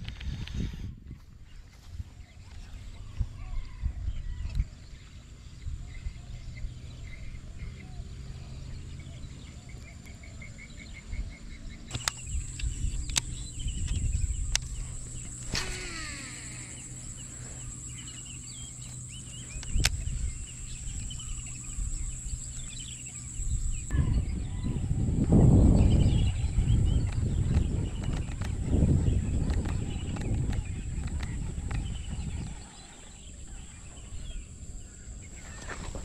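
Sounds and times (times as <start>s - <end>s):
wind rumbling on microphone: 0.0s - 9.6s, 10.8s - 36.0s
steady high-pitched hum: 3.8s - 36.0s
bird chirps: 5.6s - 24.9s
fishing reel clicks: 11.9s - 17.1s
reel spool whirring: 11.9s - 23.9s.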